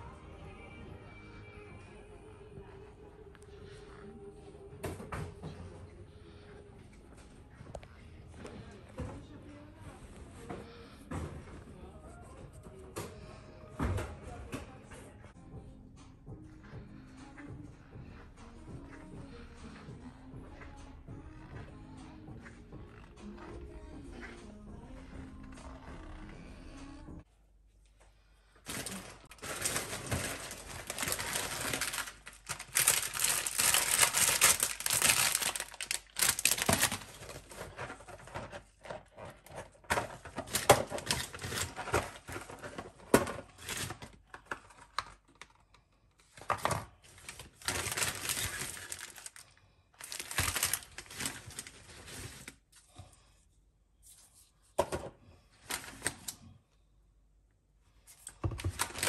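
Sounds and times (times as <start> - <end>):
bag and groceries rustling: 28.6 - 44.2, 47.0 - 52.7, 58.4 - 59.0.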